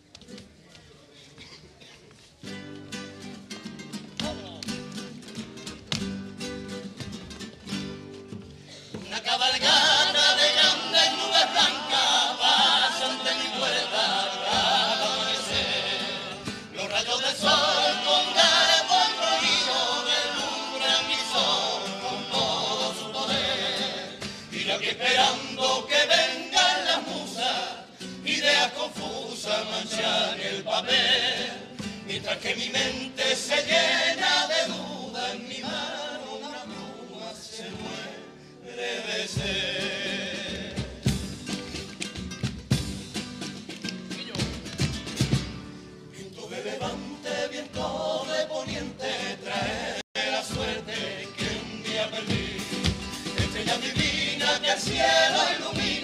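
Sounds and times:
strummed acoustic guitars: 2.4s - 56.0s
male chorus singing in harmony: 9.0s - 41.2s, 46.1s - 56.0s.

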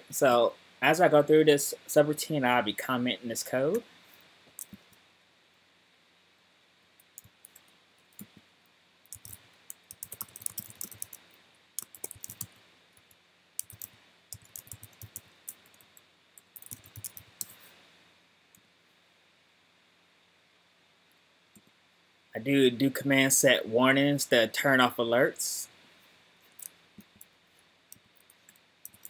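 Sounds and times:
computer keyboard typing: 7.0s - 8.4s, 9.1s - 11.2s, 11.8s - 17.6s, 27.9s - 29.0s.

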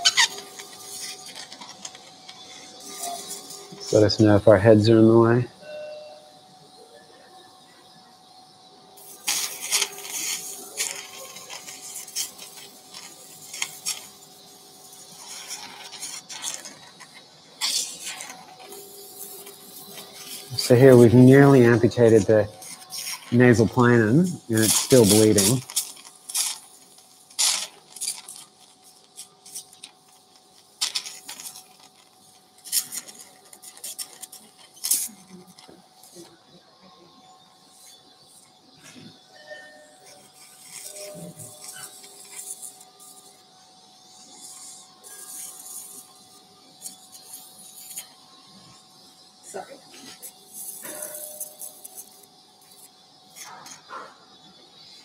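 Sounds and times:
electrocautery crackling: 0.0s - 5.6s, 6.5s - 55.0s
surgical instrument hissing sputters: 0.0s - 5.7s, 6.4s - 55.0s
faint steady hum: 0.0s - 55.0s.

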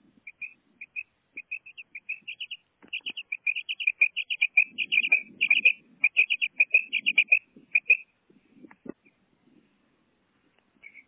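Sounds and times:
quail chirping: 0.2s - 8.1s, 10.8s - 11.0s.

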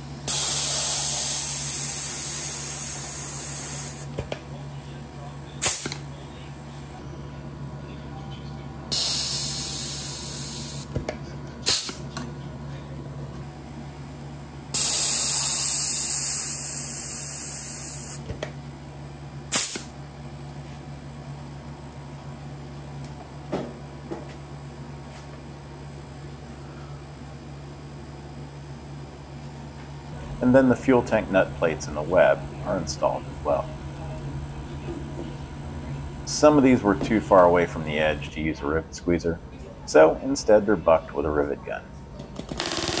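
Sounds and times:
compressed air hissing: 0.3s - 4.1s, 5.6s - 6.0s, 8.9s - 10.9s, 11.6s - 12.0s, 14.7s - 18.2s, 19.5s - 19.9s.

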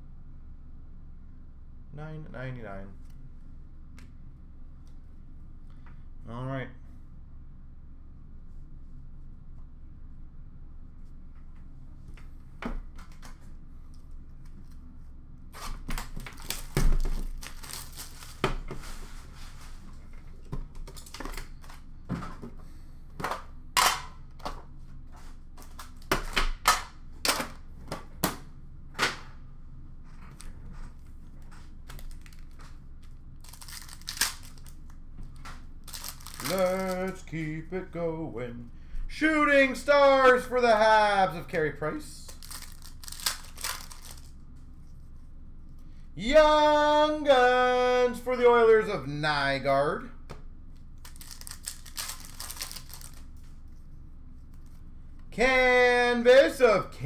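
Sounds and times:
low room hum: 0.0s - 57.0s
foil wrappers tearing and crinkling: 15.6s - 18.5s, 31.8s - 32.7s, 33.4s - 34.9s, 35.8s - 37.2s, 42.3s - 44.4s, 51.0s - 53.4s.

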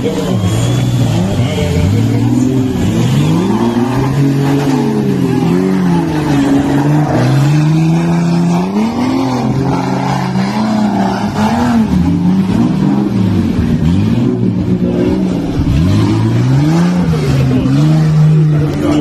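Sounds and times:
engine revving hard: 0.0s - 19.0s.

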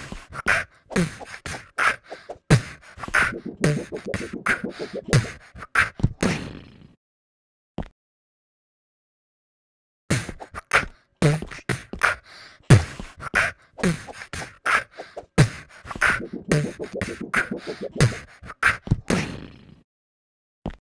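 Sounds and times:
beatboxing: 3.2s - 5.3s, 16.0s - 18.2s.

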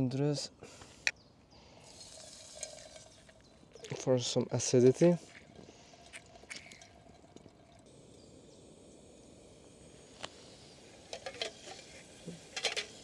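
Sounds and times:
juice dripping: 1.8s - 13.0s
lemon squeezing: 5.3s - 7.8s.

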